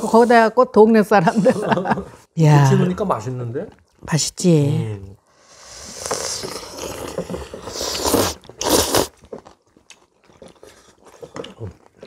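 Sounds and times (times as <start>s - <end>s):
slurping noodles: 5.3s - 12.0s
soft chewing: 6.1s - 12.0s.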